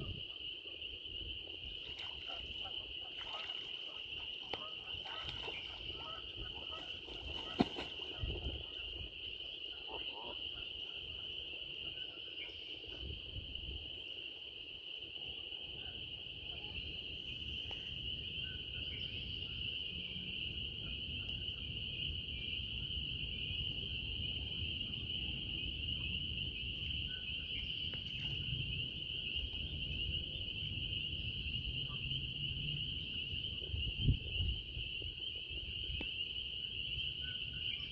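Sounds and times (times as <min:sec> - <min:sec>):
wind rumble on microphone: 0:00.0 - 0:00.5, 0:05.3 - 0:09.4, 0:18.9 - 0:37.9
frogs calling: 0:00.0 - 0:37.9.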